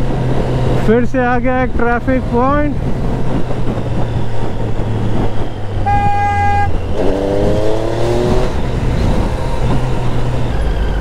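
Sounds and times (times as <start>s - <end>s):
motorcycle engine running: 0.0s - 11.0s
vehicle horn honking: 5.8s - 6.8s.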